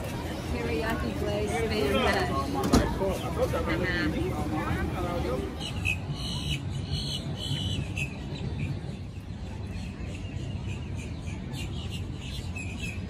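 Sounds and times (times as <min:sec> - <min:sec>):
small birds chirping: 0:03.0 - 0:13.0.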